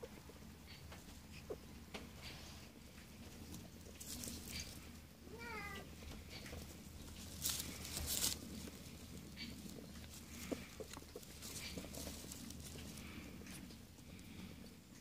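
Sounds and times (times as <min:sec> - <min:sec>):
dry straw rustling and crackling: 0:00.1 - 0:15.0.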